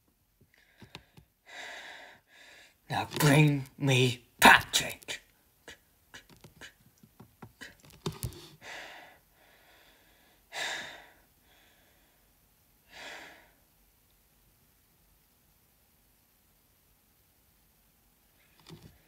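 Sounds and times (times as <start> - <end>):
small sharp clicks and taps: 0.8 - 1.3
person huffing breath out: 7.6 - 11.9.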